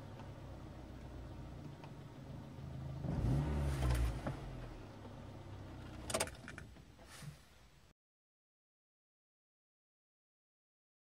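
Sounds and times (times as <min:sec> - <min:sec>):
car engine idling: 0:00.0 - 0:07.1.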